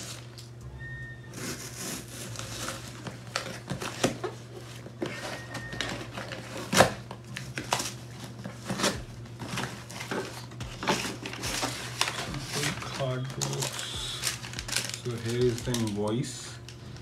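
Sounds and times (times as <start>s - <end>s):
low steady hum: 0.0s - 17.0s
cardboard box scrapes and rustles: 1.3s - 3.1s.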